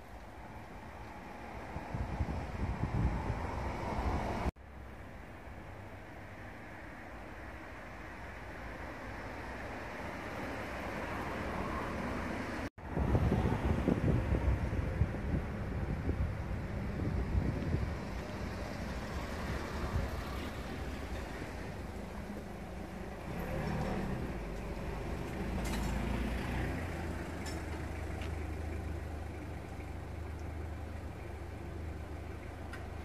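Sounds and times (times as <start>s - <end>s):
road traffic rumble: 0.0s - 33.0s
motor vehicle passing: 17.0s - 29.8s.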